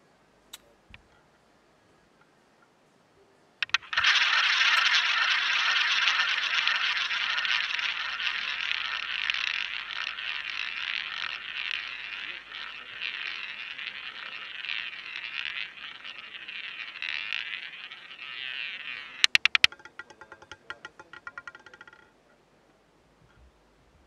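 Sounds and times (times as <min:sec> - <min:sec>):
roulette ball rolling: 0:03.6 - 0:22.2.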